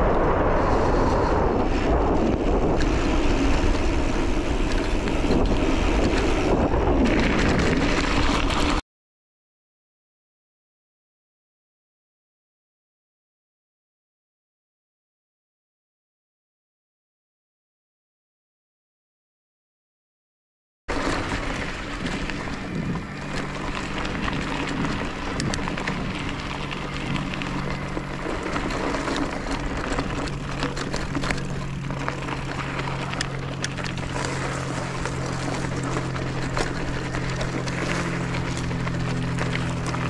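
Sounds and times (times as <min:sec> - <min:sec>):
low hum: 0:00.0 - 0:08.8, 0:20.9 - 0:40.0
wind on microphone: 0:00.0 - 0:08.8, 0:21.0 - 0:40.0
tyres crunching over gravel: 0:00.2 - 0:08.8, 0:20.9 - 0:40.0.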